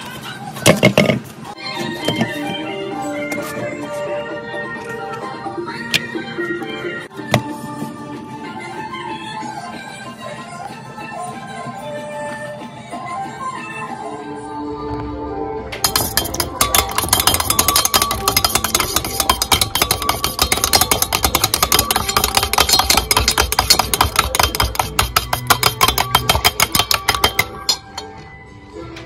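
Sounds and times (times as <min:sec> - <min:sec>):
whisk clinking in metal bowl: 0:15.8 - 0:28.1.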